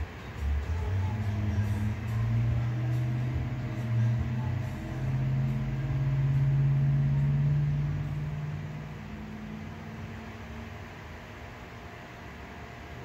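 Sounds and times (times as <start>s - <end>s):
low engine-like hum: 0.0s - 13.0s.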